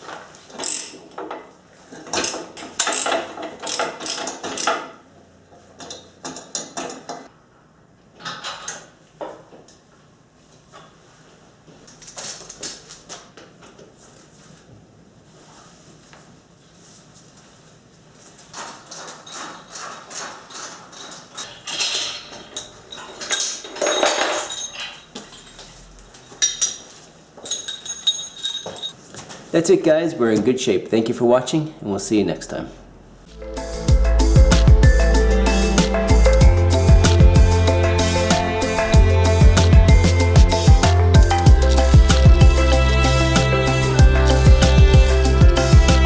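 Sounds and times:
ratchet wrench clicking: 0:00.6 - 0:01.0, 0:02.2 - 0:04.8
steel chains clinking and rattling: 0:18.9 - 0:29.0.

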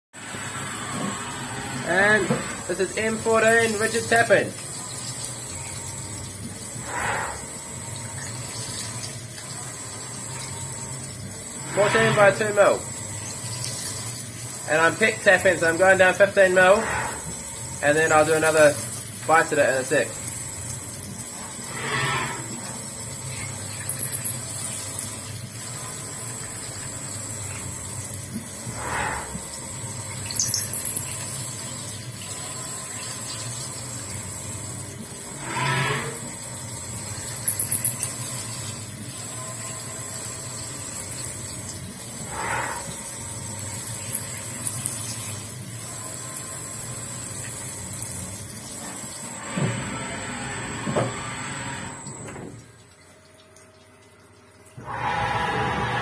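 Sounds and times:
high machine whine: 0:09.6 - 0:52.5, 0:54.8 - 0:56.0.

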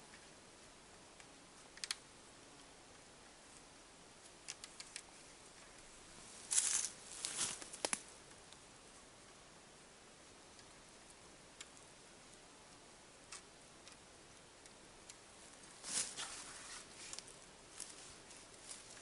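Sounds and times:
faint wire clicks: 0:04.4 - 0:05.9, 0:07.6 - 0:08.6
brief rustle: 0:15.8 - 0:19.0.

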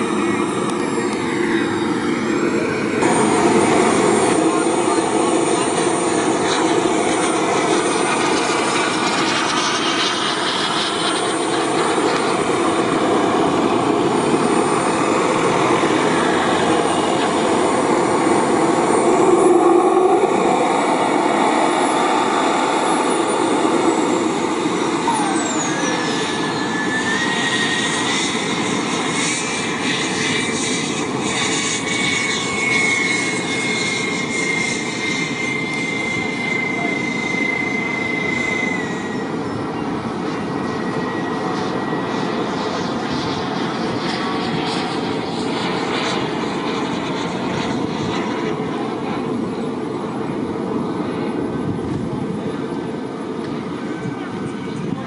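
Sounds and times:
model jet fans whining: 0:00.0 - 0:55.0
rising high tone: 0:11.9 - 0:28.1.

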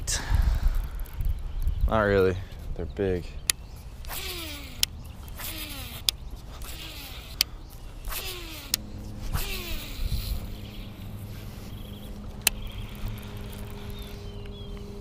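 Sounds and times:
steady low hum: 0:00.0 - 0:15.0
fishing reel spool whirring: 0:04.0 - 0:15.0.

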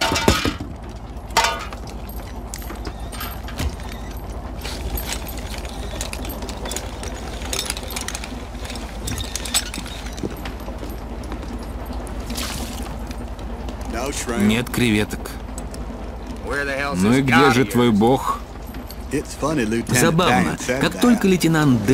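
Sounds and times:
light knocks and rattles: 0:00.0 - 0:16.9, 0:18.3 - 0:20.0
boat engine throbbing: 0:00.8 - 0:21.9.

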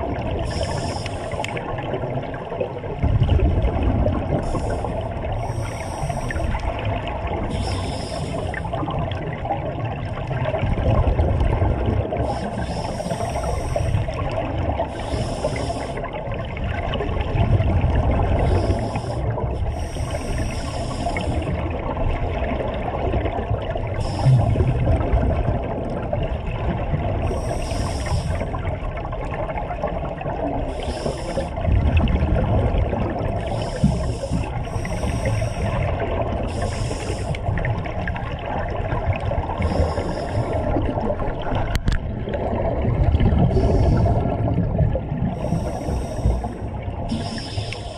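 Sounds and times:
low rumble of sea: 0:00.0 - 0:47.9
scuba regulator breathing: 0:00.4 - 0:01.7, 0:04.4 - 0:06.8, 0:07.4 - 0:08.9, 0:12.1 - 0:16.2, 0:18.3 - 0:21.6, 0:23.9 - 0:25.0, 0:27.2 - 0:28.7, 0:30.6 - 0:31.7, 0:33.3 - 0:37.6, 0:39.4 - 0:40.9, 0:43.4 - 0:44.6, 0:45.3 - 0:47.9.

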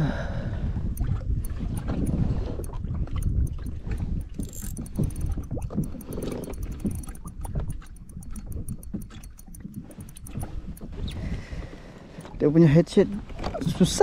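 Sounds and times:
water and wind buffeting: 0:00.0 - 0:14.0
small sharp clicks: 0:00.9 - 0:11.4.

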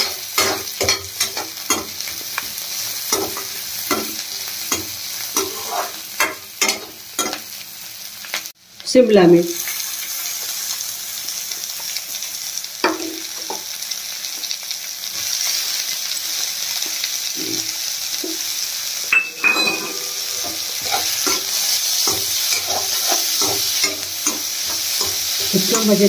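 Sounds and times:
spatula scraping and tapping pan: 0:00.0 - 0:02.5, 0:03.1 - 0:07.4, 0:19.1 - 0:26.0
vegetables sizzling in hot oil: 0:00.0 - 0:26.0.

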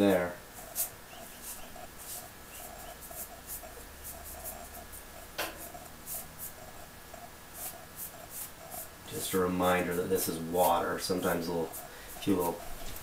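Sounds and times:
brush scrubbing paint on panel: 0:00.6 - 0:13.0.

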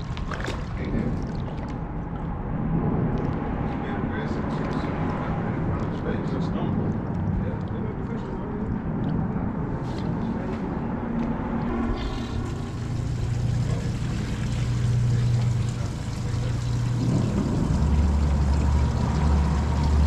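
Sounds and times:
boat motor humming: 0:04.6 - 0:20.0.

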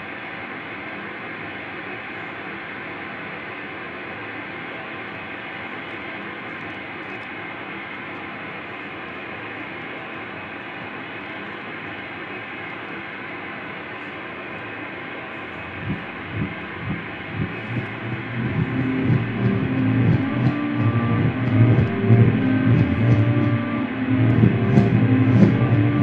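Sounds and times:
dense noise music: 0:14.8 - 0:26.0
low pulses: 0:15.4 - 0:26.0.

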